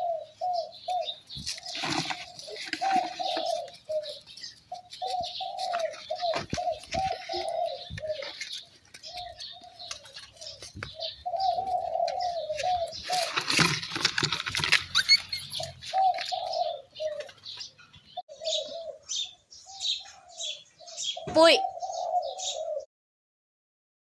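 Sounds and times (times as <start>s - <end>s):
puppy calls: 14.8s - 17.3s.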